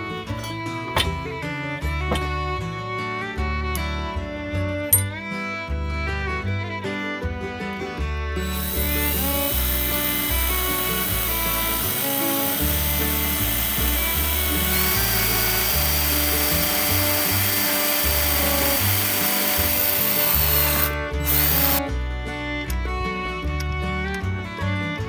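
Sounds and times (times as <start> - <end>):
background music: 0.0 - 25.0
cordless drill boring: 8.4 - 21.8.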